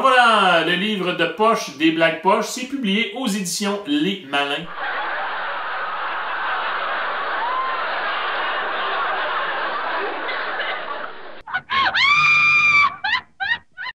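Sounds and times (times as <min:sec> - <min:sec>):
people laughing: 0:04.6 - 0:14.0
high-pitched cry and yelps: 0:11.5 - 0:13.9.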